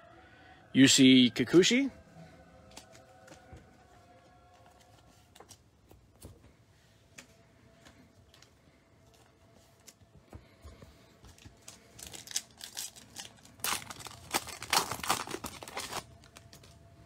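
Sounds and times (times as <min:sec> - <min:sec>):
foil wrapper crinkling: 0:11.3 - 0:16.8.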